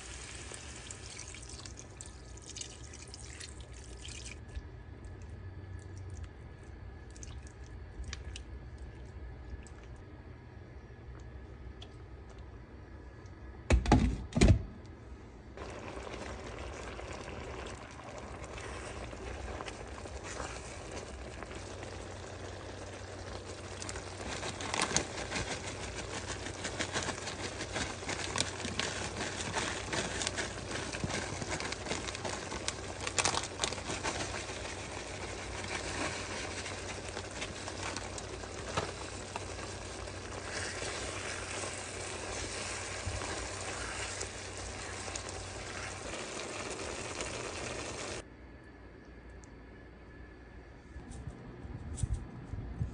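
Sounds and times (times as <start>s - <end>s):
sauce sizzling and bubbling: 0.0s - 4.5s, 15.6s - 48.2s.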